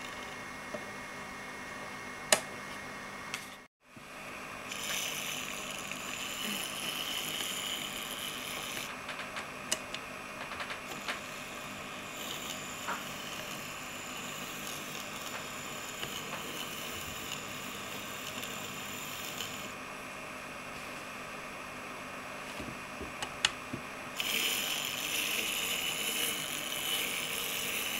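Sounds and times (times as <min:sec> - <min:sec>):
tiny electric motor whirring: 0:04.7 - 0:08.9, 0:10.9 - 0:19.8, 0:24.2 - 0:27.9.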